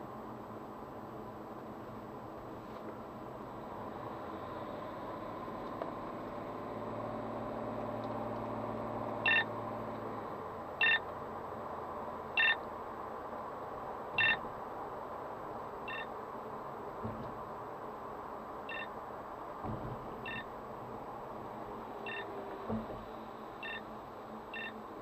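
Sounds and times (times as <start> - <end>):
car engine: 0.0 - 25.0
road noise: 0.0 - 25.0
radar detector beeping: 9.3 - 9.5, 10.8 - 11.0, 12.4 - 12.6, 14.2 - 14.4, 15.9 - 16.1, 18.7 - 18.9, 20.2 - 20.5, 22.1 - 22.3, 23.6 - 23.8, 24.6 - 24.8.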